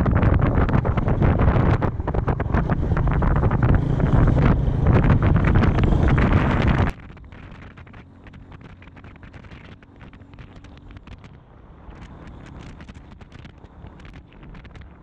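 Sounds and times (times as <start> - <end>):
motorcycle engine running: 0.0 - 15.0
wind on microphone: 0.0 - 15.0
small clicks and knocks: 6.6 - 15.0.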